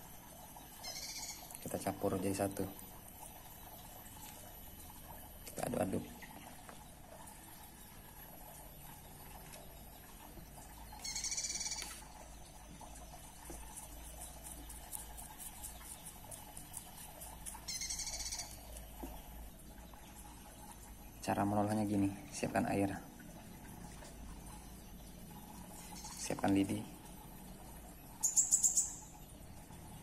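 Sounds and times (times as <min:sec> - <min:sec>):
high-pitched bird trill: 0:00.8 - 0:01.5, 0:11.0 - 0:12.0, 0:17.7 - 0:18.6, 0:28.2 - 0:29.1.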